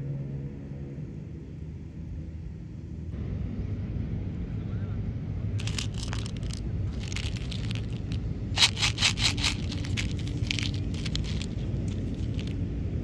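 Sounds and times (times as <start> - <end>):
steady low hum: 0.0 - 13.0
plastic wrapper crinkling: 5.6 - 12.6.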